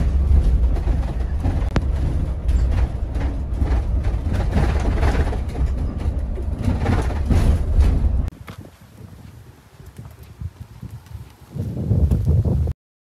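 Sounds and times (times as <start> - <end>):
light rattles of bus fittings: 0.0 - 8.3
bus engine and road rumble: 0.0 - 12.7.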